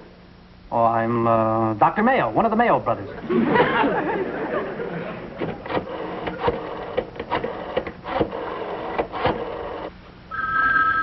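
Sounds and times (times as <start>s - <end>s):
two-tone telephone ring: 10.3s - 11.0s.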